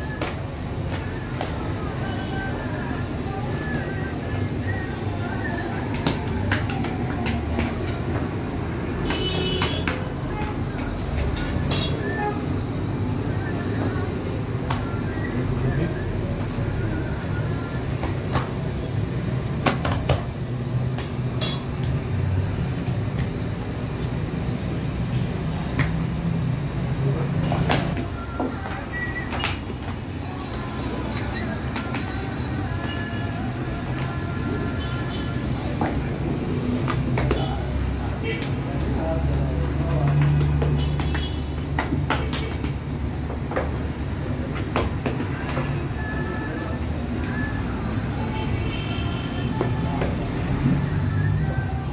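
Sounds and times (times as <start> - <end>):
dough patted on worktable: 38.4 - 43.6.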